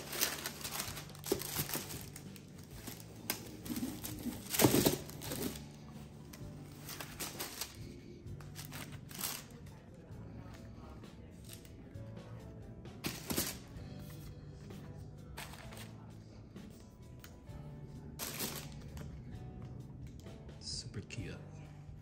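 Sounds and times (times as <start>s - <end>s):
tissue paper rustling: 0.0s - 9.7s, 13.0s - 14.3s, 15.4s - 16.0s, 18.2s - 18.8s.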